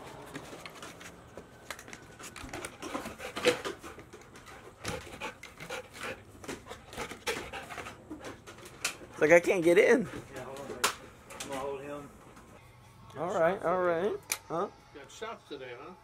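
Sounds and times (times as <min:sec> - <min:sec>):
dog panting: 0:02.1 - 0:10.4.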